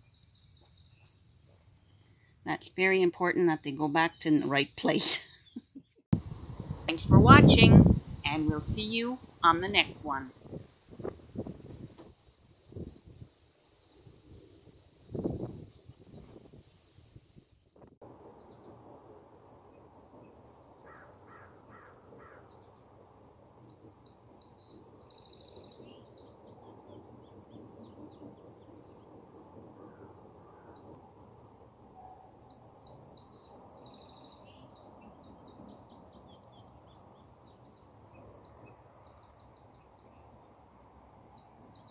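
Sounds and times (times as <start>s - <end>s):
songbirds trilling and chirping: 18.3s - 41.9s.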